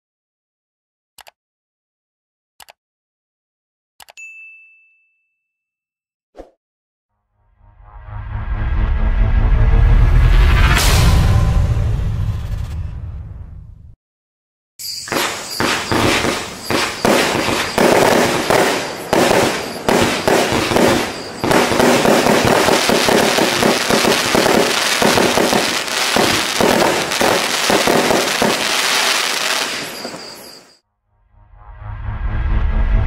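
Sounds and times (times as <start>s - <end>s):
crackling fireworks stars: 14.8s - 30.8s
fireworks launches and bangs: 14.9s - 30.8s.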